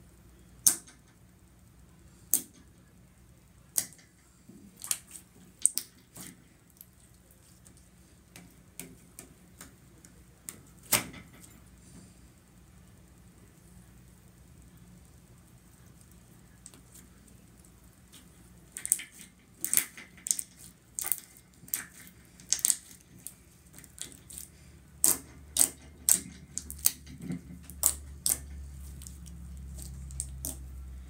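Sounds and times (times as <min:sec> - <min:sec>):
slime clicking and popping: 0:18.8 - 0:30.7.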